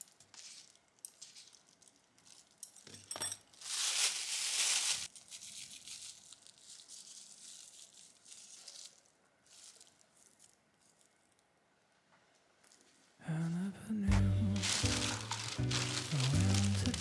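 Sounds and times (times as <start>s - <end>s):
plastic bag crinkling: 0.0s - 2.8s, 3.5s - 11.5s, 14.2s - 17.0s.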